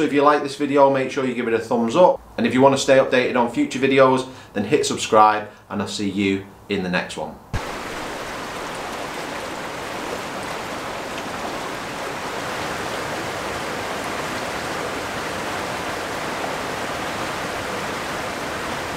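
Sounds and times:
river water rushing over rocks: 7.6 - 18.9.

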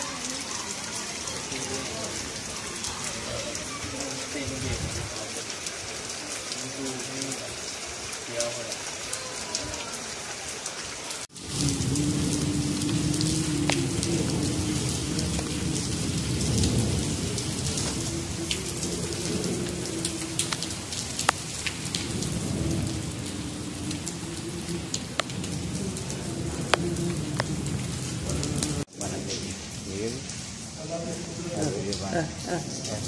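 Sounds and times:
steady rain falling: 0.0 - 33.0
raindrop ticks: 11.2 - 33.0.

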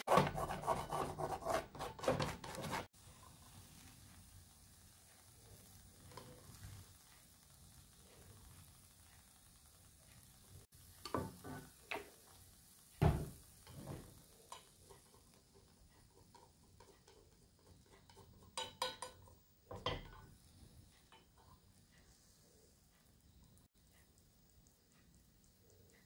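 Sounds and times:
chopsticks scraping a frying pan: 0.0 - 4.0, 13.5 - 22.4
eggs sizzling faintly: 0.0 - 26.0
pan knocking on stove grate: 11.0 - 12.1, 13.0 - 20.3.

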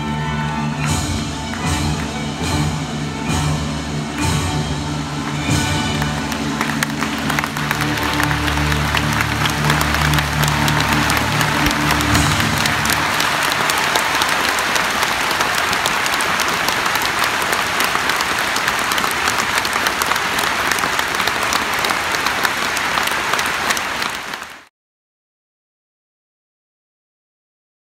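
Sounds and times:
orchestra playing: 0.0 - 24.6
audience applauding: 4.0 - 24.7.

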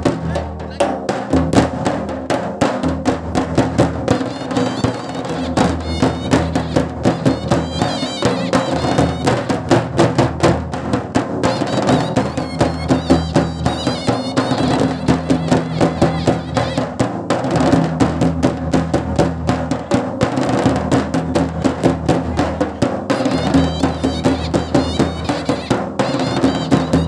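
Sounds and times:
drums beaten with sticks: 0.0 - 27.0
shehnai wavering melody: 4.1 - 9.7, 11.4 - 17.0, 23.1 - 27.0.

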